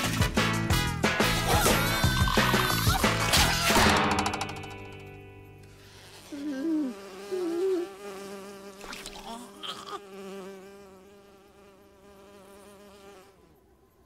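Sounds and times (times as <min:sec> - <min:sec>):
insect-like buzzing drone: 0:05.8 - 0:14.0.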